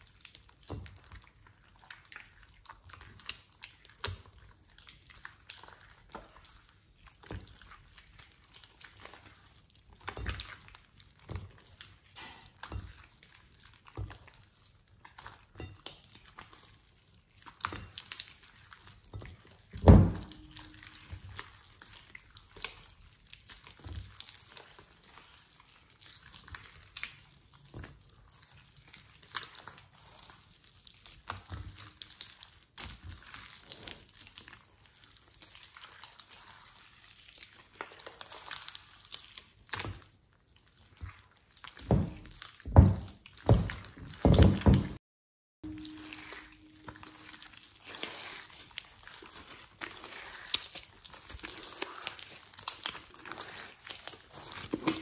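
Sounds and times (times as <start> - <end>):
slime squelching and crackling: 0.0 - 45.0, 45.6 - 55.0
loud thump: 19.8 - 20.4.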